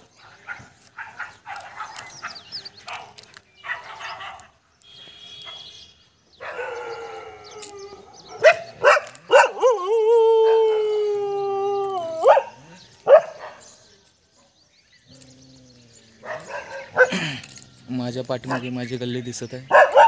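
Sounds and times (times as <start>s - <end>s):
dog barks and yelps: 6.4s - 10.8s, 11.8s - 13.6s, 16.2s - 17.2s, 19.7s - 20.0s
dog howling: 9.3s - 12.7s.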